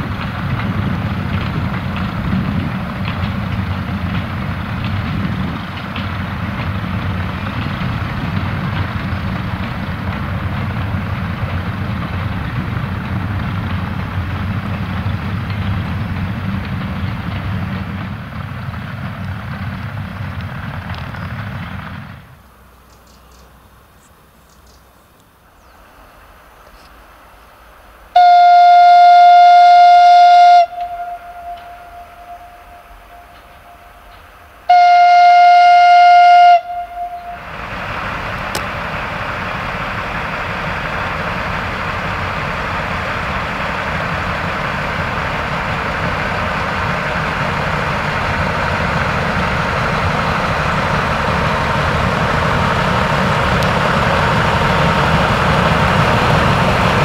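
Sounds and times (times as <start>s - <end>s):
train wheels rumbling on rail: 0.0s - 57.0s
locomotive horn blast: 28.2s - 37.7s.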